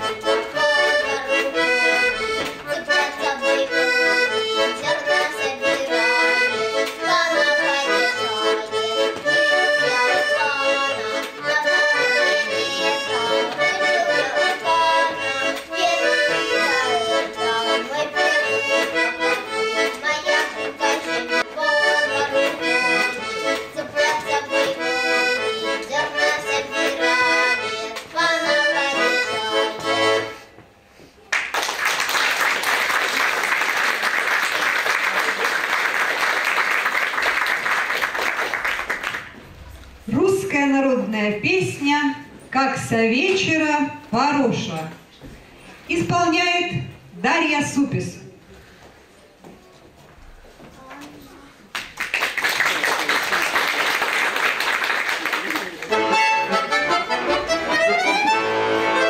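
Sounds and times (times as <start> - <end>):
accordion folk tune: 0.0 - 31.2, 32.4 - 44.7, 53.0 - 59.0
applause: 31.3 - 39.4, 51.7 - 55.9.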